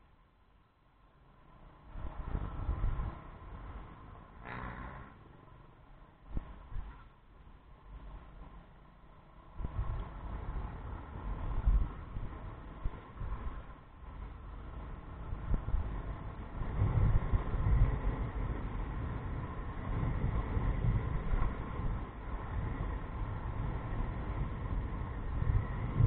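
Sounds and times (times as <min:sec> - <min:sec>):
faint engine hum: 0:00.0 - 0:26.0
motorcycle road noise: 0:01.1 - 0:26.0
wind buffeting microphone: 0:02.0 - 0:03.8, 0:09.5 - 0:26.0.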